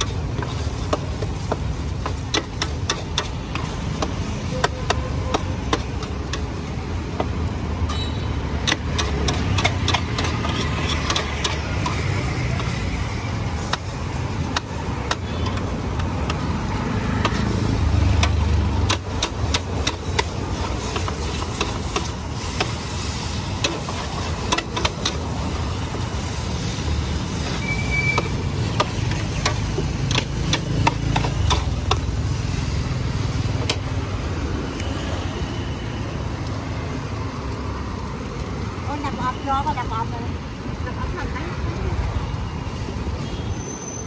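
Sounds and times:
metal spatula scraping wok: 0:07.9 - 0:33.9.

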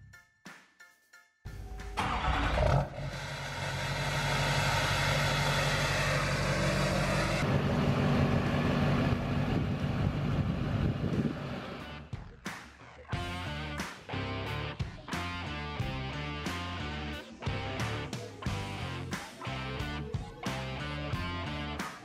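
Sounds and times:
diesel engine starting and idling: 0:01.9 - 0:12.0.

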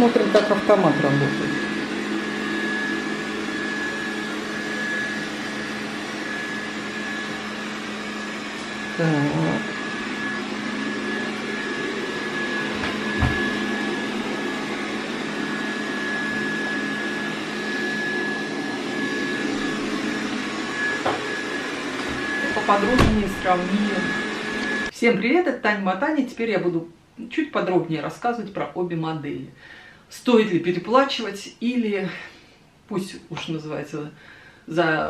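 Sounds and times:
robot vacuum whirring: 0:00.0 - 0:24.9.

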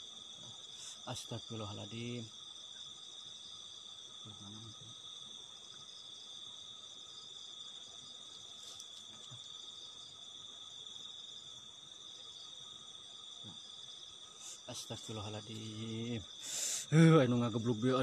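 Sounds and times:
crickets and night insects chirping: 0:00.0 - 0:18.0.

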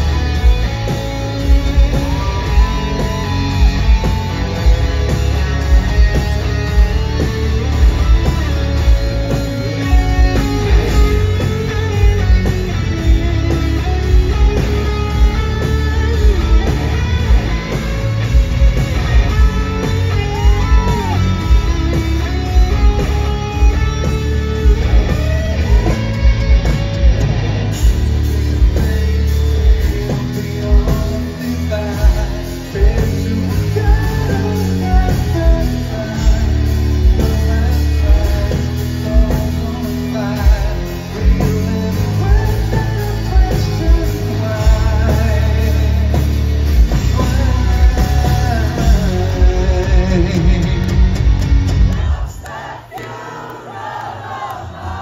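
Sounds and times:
rock band playing live: 0:00.0 - 0:53.2
man singing: 0:28.3 - 0:51.2.

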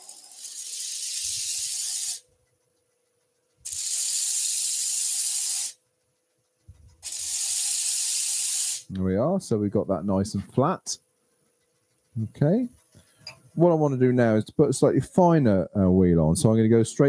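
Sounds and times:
wood on sanding disc hiss: 0:00.0 - 0:02.2, 0:03.6 - 0:05.8, 0:06.8 - 0:08.9.

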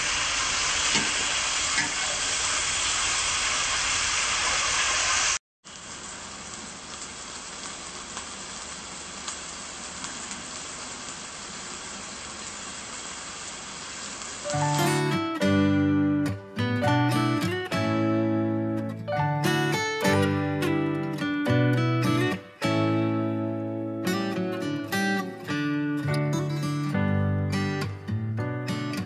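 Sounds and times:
beef sizzling in a wok: 0:00.0 - 0:16.3
plucked guitar music: 0:14.5 - 0:29.0.

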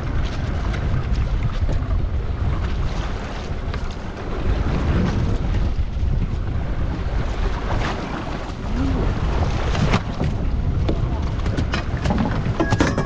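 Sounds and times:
sea water washing around boat: 0:00.0 - 0:13.0
wind buffeting microphone: 0:00.0 - 0:13.0.

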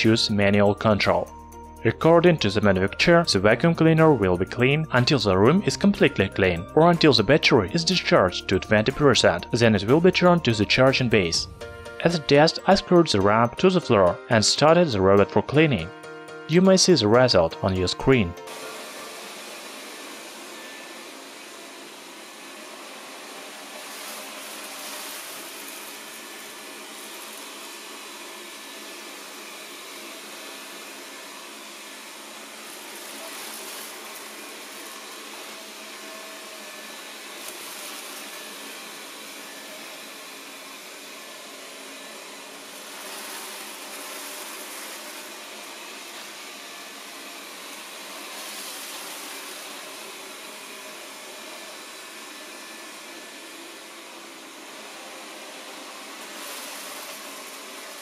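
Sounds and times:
robot vacuum cleaner whirring: 0:18.5 - 0:58.0.

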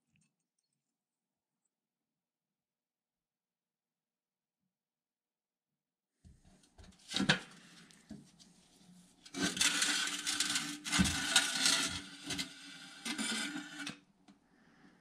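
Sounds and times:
wood and metal scraping: 0:09.3 - 0:14.0.

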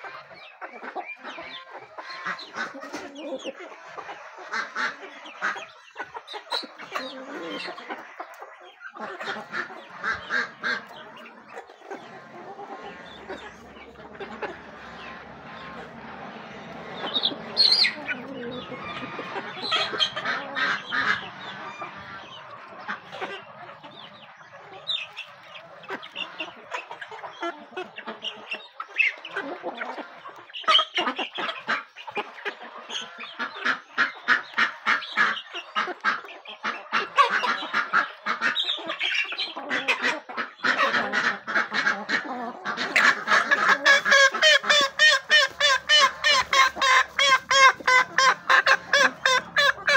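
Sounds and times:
chickens clucking: 0:00.0 - 0:49.9
duck honk-like calls: 0:39.7 - 0:49.9.

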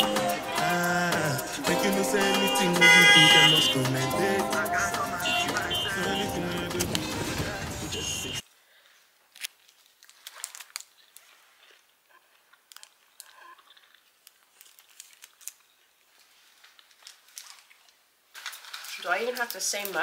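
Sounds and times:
sharp crackles: 0:09.3 - 0:20.0
shopping bags crinkling: 0:09.4 - 0:11.3, 0:14.2 - 0:20.0.

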